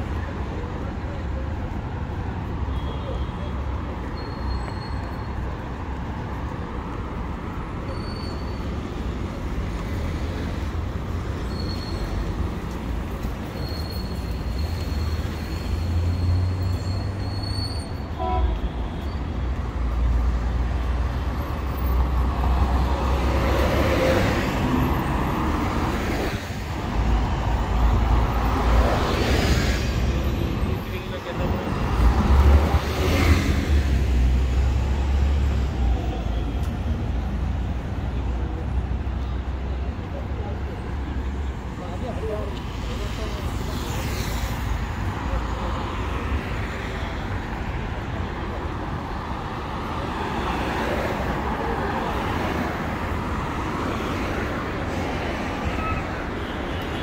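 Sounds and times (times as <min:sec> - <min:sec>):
passing cars rumble: 0:19.8 - 0:36.1.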